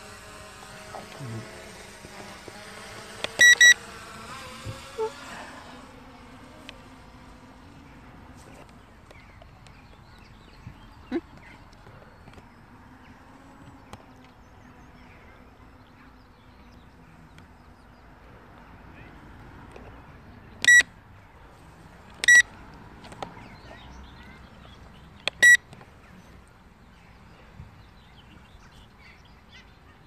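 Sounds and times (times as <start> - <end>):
short electronic beeps: 3.4 - 3.8, 20.6 - 20.9, 22.2 - 22.5, 25.3 - 25.6.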